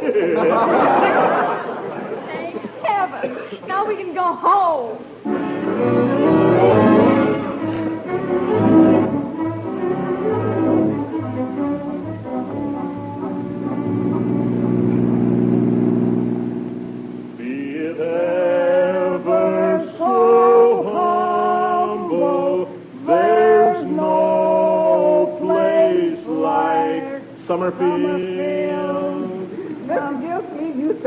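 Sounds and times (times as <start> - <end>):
held orchestral chord: 5.2 - 18.2
man singing: 17.4 - 29.7
voices singing a song: 17.4 - 30.5.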